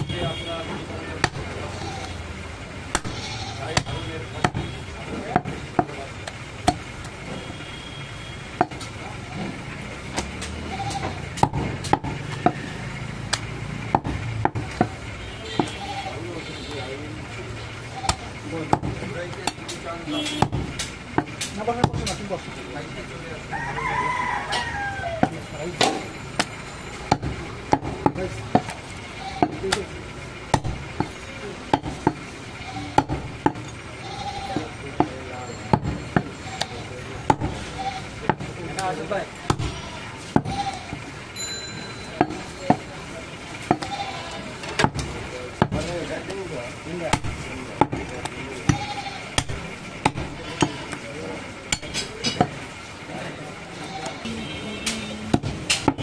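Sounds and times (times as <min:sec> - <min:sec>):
cleaver chopping on wooden block: 0:02.9 - 0:03.2, 0:03.8 - 0:04.7, 0:10.2 - 0:12.6, 0:13.3 - 0:15.0, 0:18.1 - 0:22.2, 0:27.1 - 0:28.8, 0:30.5 - 0:32.2, 0:33.0 - 0:33.6, 0:37.2 - 0:37.7, 0:38.3 - 0:38.9, 0:39.5 - 0:40.7, 0:43.6 - 0:43.9, 0:44.7 - 0:45.9, 0:47.1 - 0:50.8, 0:51.7 - 0:52.6, 0:54.8 - 0:56.0.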